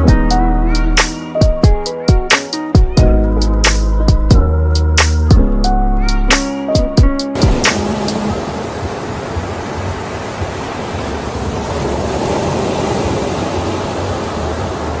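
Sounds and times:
ocean surf washing in: 7.2s - 15.0s.

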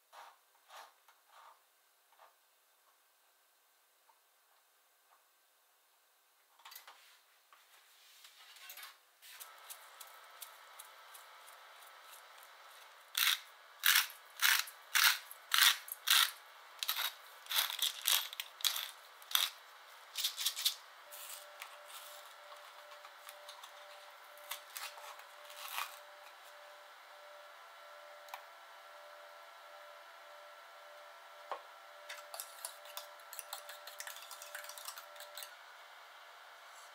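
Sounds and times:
faint steady hum: 0.0s - 36.9s
whisk clinking in metal bowl: 32.3s - 35.4s.

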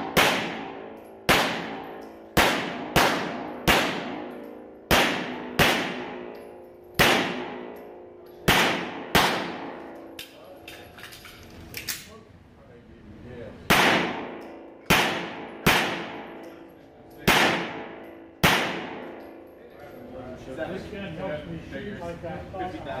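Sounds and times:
pistol shots echoing indoors: 0.0s - 10.8s, 13.7s - 19.5s.

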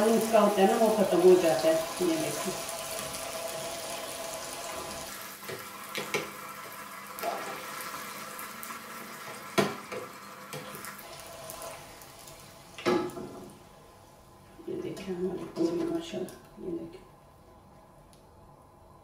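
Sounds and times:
dough deep-frying sizzle: 0.0s - 14.8s.

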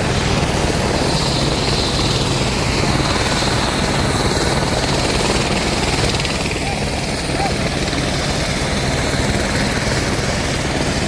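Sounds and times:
helicopter engine noise: 0.0s - 11.0s
helicopter rotor beat: 0.0s - 11.0s.

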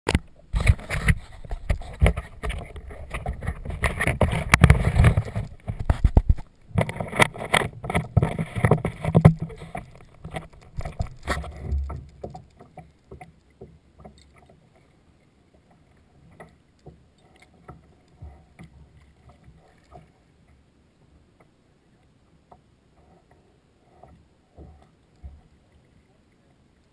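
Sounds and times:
camera knocking on plastic kayak: 0.1s - 12.4s
water splashing against kayak hull: 0.1s - 26.9s.

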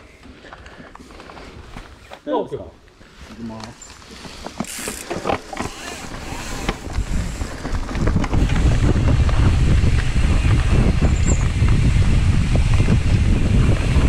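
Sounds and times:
bike clicks and rattles: 3.3s - 14.0s
wind rushing over microphone: 5.6s - 14.0s.

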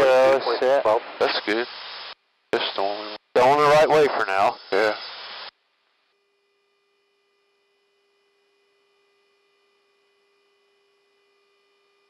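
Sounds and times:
faint electronic hum: 5.6s - 12.0s.

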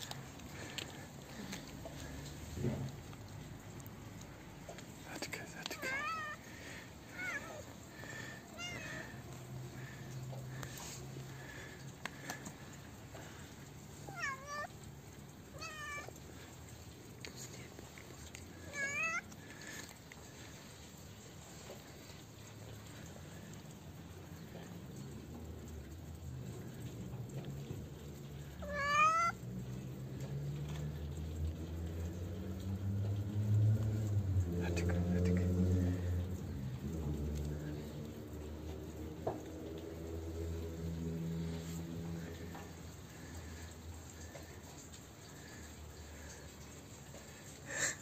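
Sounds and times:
cat meowing: 5.7s - 9.9s, 14.0s - 16.5s, 18.6s - 19.5s, 28.6s - 29.4s.

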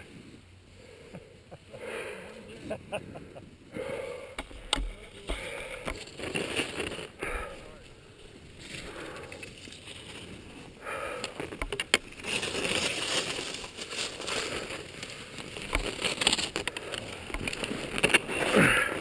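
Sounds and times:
skis scraping over snow: 5.0s - 19.0s.

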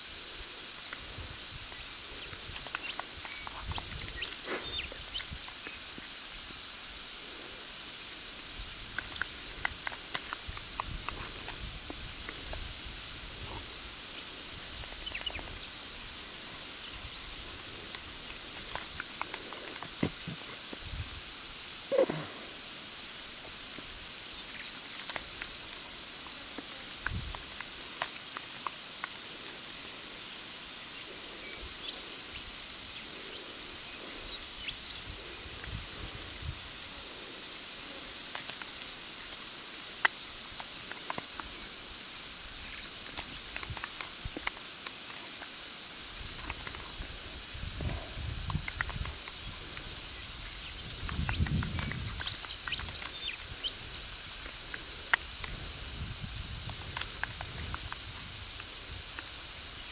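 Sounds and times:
water spraying from pipe: 0.0s - 59.9s
clicks and splashes: 0.6s - 59.9s.

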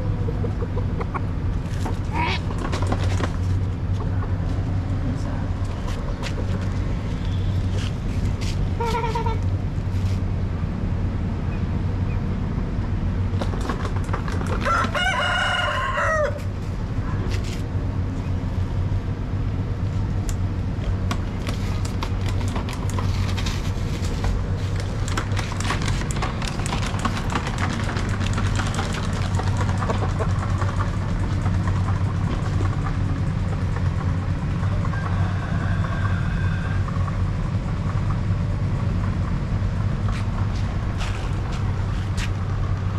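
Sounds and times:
rooster crowing: 14.6s - 16.5s, 34.7s - 37.0s.

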